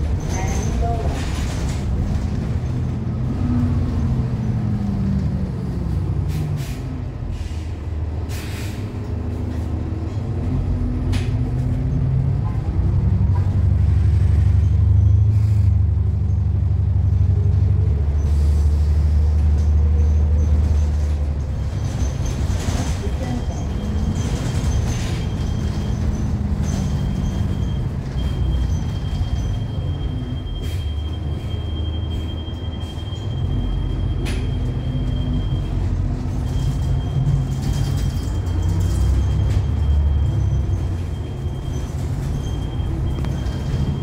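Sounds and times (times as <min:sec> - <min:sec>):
bus diesel engine running: 0:00.0 - 0:44.0
air brake hisses: 0:06.3 - 0:08.9.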